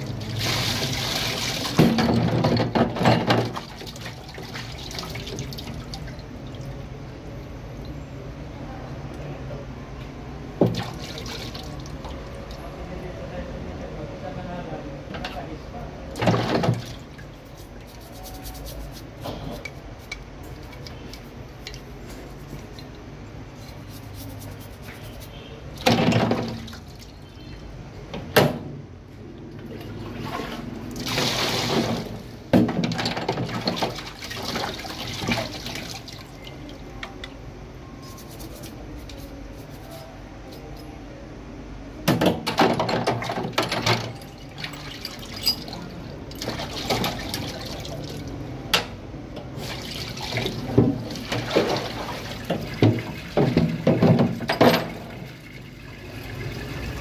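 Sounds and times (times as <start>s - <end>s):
water pouring into metal sink: 0.0s - 2.5s
water splashing in plastic tray: 16.2s - 17.1s, 32.9s - 36.3s, 49.6s - 54.4s.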